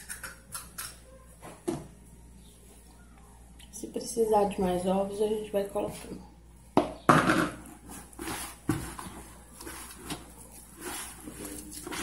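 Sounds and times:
wet knocks and scrapes of mixing: 7.2s - 12.0s.

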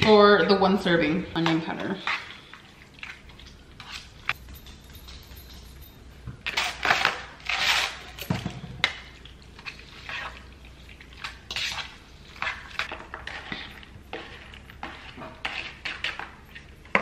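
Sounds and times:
seasoning shaker rattling: 4.3s - 6.1s.

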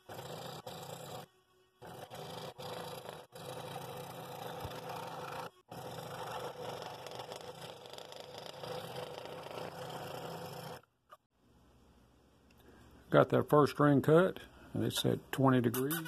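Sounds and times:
scroll saw buzzing: 0.0s - 10.8s.

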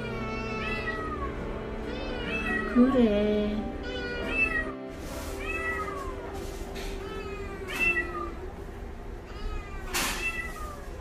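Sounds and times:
kitten meowing: 0.0s - 2.9s, 3.6s - 4.8s, 9.3s - 11.0s.

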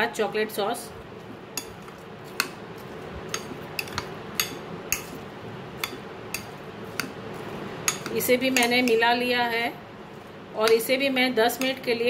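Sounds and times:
spoon stirring in glass bowl: 1.2s - 9.0s.

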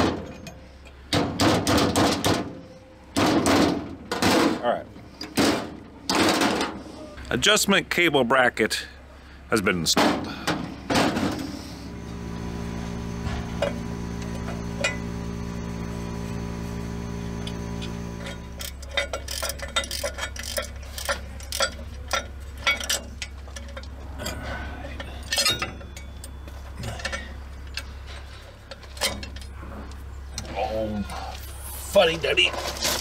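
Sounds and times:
steady machine hum: 10.3s - 33.0s
metallic clicks and clinks: 18.3s - 27.9s.

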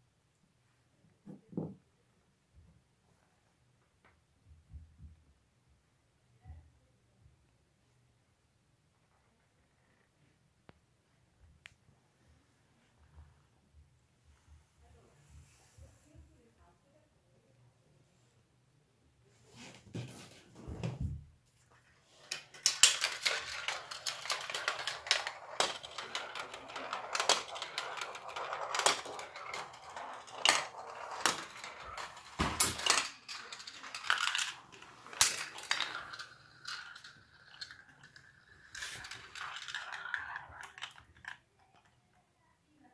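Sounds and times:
marbles rolling on plastic track: 22.1s - 42.0s
marbles clacking: 22.3s - 42.0s.

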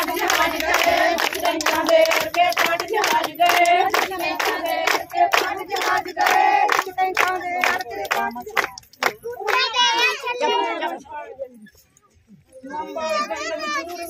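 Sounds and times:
rhythmic hand clapping: 0.0s - 10.2s
women singing together: 0.0s - 11.2s.

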